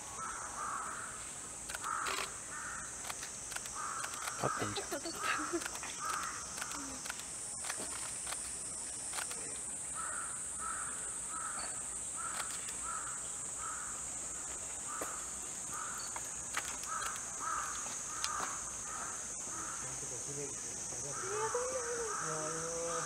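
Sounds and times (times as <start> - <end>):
high-pitched insect buzz: 0.0 - 23.0
crow cawing: 0.2 - 1.2, 1.8 - 2.9, 3.8 - 6.4, 10.0 - 14.0, 16.9 - 20.0, 21.1 - 23.0.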